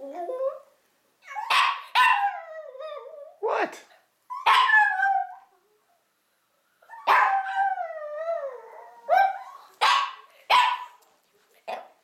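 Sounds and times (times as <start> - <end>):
dog yipping: 1.2 - 2.4, 4.3 - 5.4, 7.0 - 7.6.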